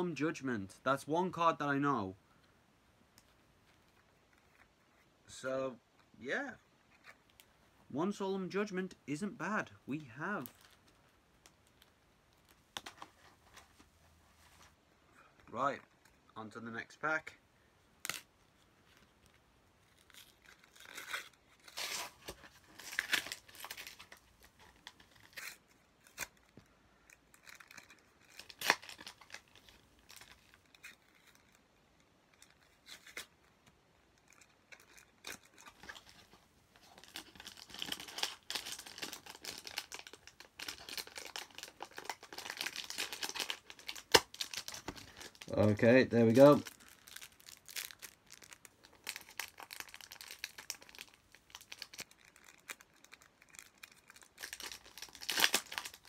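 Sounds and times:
foil wrapper crinkling: 0:19.8 - 0:31.6, 0:34.2 - 0:56.0.

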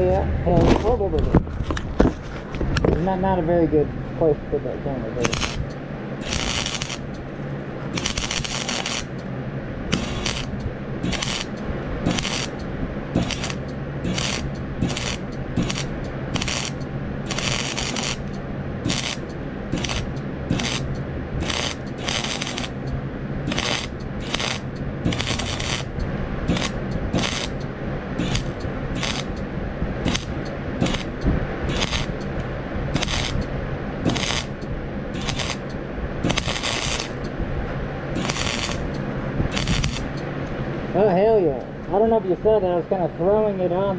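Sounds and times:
steady low hum: 0:00.0 - 0:43.9
arc welder crackling: 0:05.2 - 0:37.4, 0:38.1 - 0:40.6.

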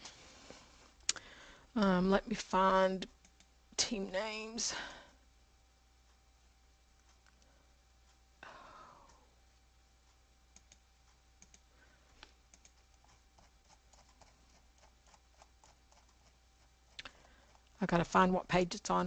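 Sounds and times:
keyboard typing and clicking: 0:10.5 - 0:11.6, 0:12.5 - 0:16.3.

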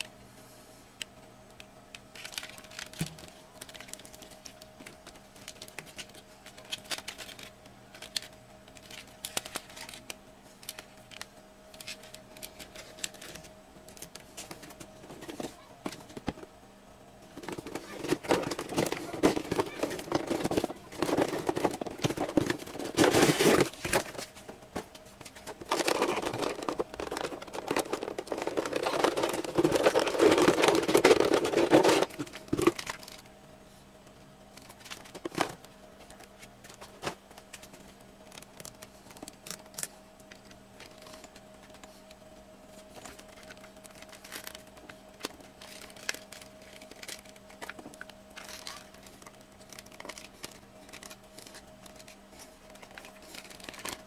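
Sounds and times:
faint steady hum: 0:00.0 - 0:54.0
cardboard and plastic packaging handled: 0:02.1 - 0:16.5, 0:17.3 - 0:33.3, 0:42.7 - 0:54.0.

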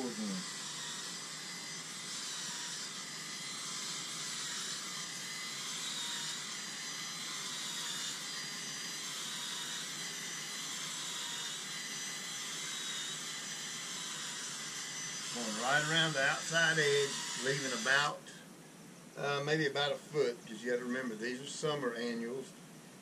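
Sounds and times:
drill auger boring into soil: 0:00.0 - 0:18.1.

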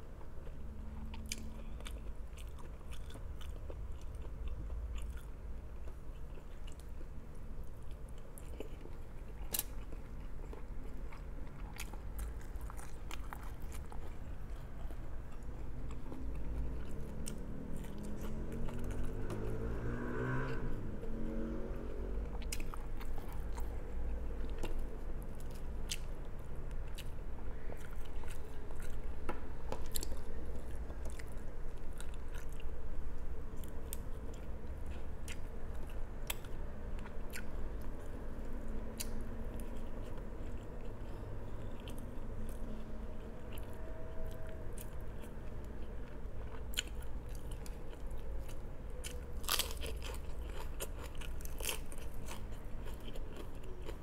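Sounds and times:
faint low hum: 0:00.0 - 0:54.0
person chewing and crunching: 0:00.2 - 0:54.0.

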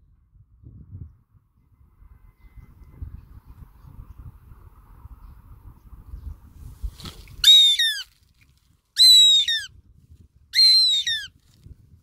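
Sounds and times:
goshawk shrill calls: 0:07.4 - 0:08.1, 0:09.0 - 0:09.7, 0:10.6 - 0:11.4.

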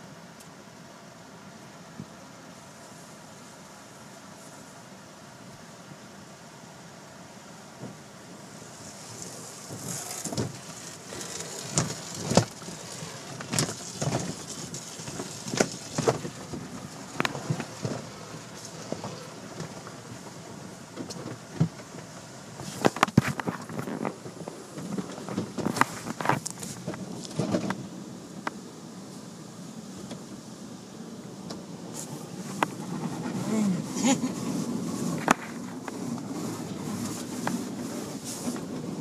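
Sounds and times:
water jets hissing: 0:08.2 - 0:21.0
car wash brushes slapping: 0:08.8 - 0:20.0.

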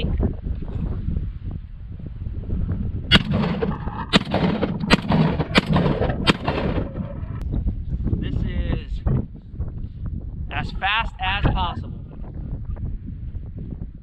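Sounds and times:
shotgun shots: 0:03.1 - 0:07.4.

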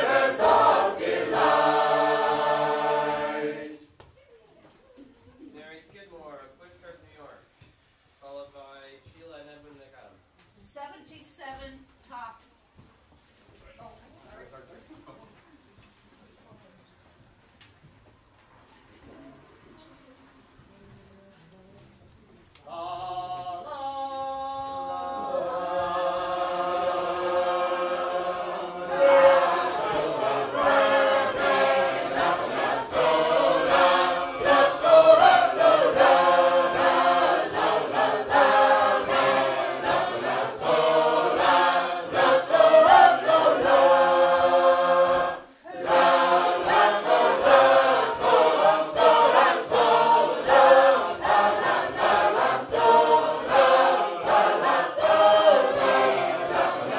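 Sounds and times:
mixed group singing a cappella: 0:00.0 - 0:04.0, 0:22.6 - 0:56.9.

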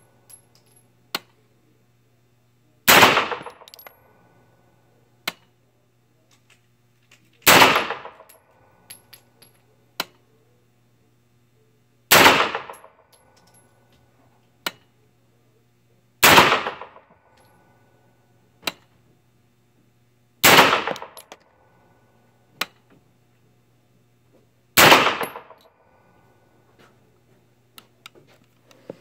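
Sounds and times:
pistol shots ringing indoors: 0:02.8 - 0:04.0, 0:07.4 - 0:08.4, 0:12.1 - 0:13.0, 0:16.2 - 0:17.2, 0:20.4 - 0:21.4, 0:24.8 - 0:25.7.

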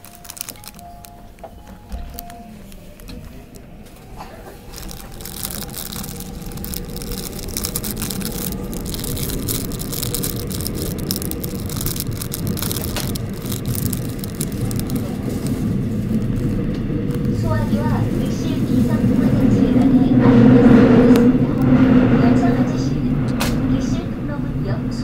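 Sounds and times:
subway train rumbling: 0:00.0 - 0:25.0.

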